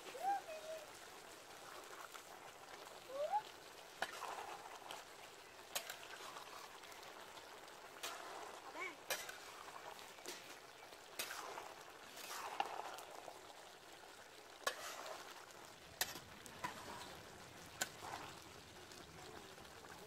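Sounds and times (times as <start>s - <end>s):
faint simmering sizzle: 0.0s - 20.0s
metal ladle scraping a pot: 11.2s - 13.0s, 14.6s - 15.3s.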